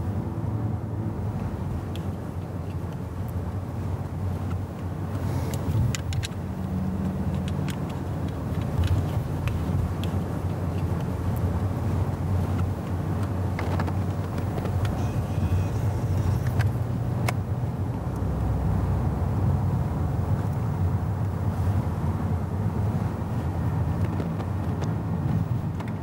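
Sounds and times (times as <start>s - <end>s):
car cabin road and engine noise: 0.0s - 26.0s
light clicks and taps: 1.9s - 3.4s, 4.4s - 11.5s, 25.7s - 26.0s.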